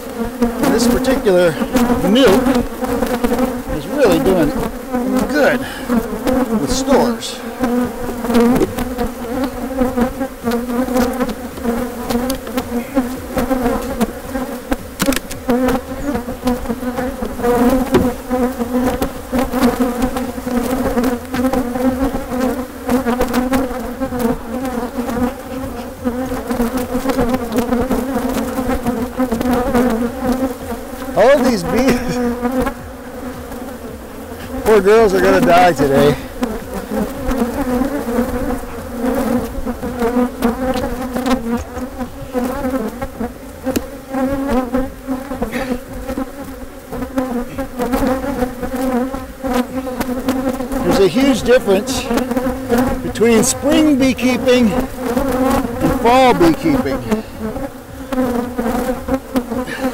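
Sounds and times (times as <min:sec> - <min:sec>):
bees buzzing: 0:00.0 - 0:59.9
knocks of wooden frames: 0:17.7 - 0:18.4.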